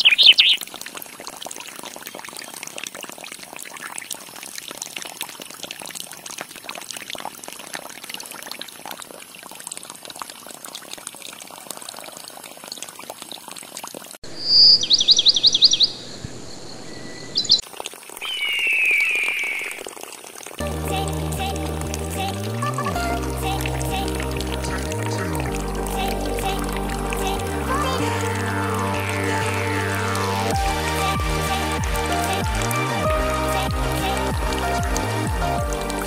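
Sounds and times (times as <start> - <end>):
water pouring and splashing: 0.0 - 14.2, 17.6 - 36.0
bird chirping: 14.3 - 17.6, 18.2 - 19.8.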